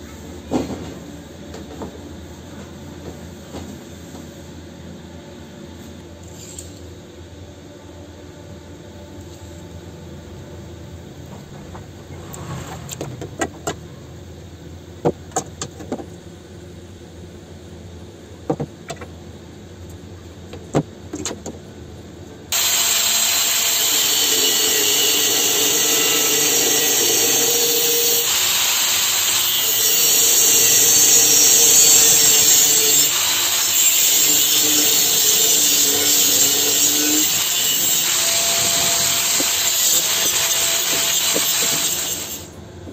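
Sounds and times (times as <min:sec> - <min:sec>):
angle grinder cutting steel: 0:22.5 - 0:42.5.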